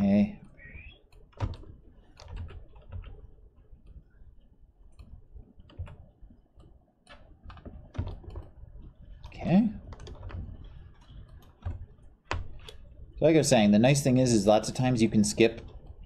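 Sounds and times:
keyboard and mouse clicks: 0.4 - 12.9.

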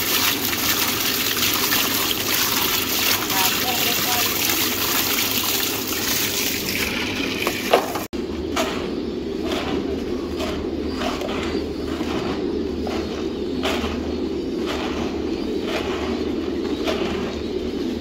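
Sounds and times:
hands stirring dry feed pellets: 0.0 - 8.0.

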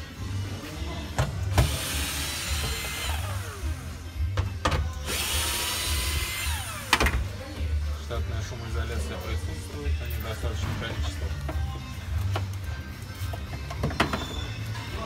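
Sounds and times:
background music with beat: 0.0 - 15.0
power drill whirring: 1.5 - 3.8, 5.0 - 7.1.

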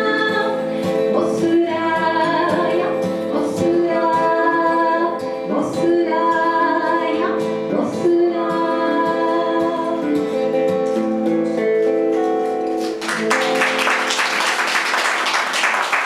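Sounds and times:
guitars playing: 0.0 - 16.0
applause: 12.8 - 16.0.

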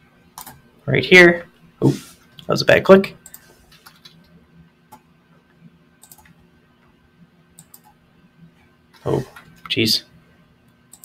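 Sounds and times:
low room hum: 0.0 - 11.0
computer mouse clicks: 0.4 - 0.6, 3.2 - 4.3, 6.0 - 6.4, 7.6 - 8.0.

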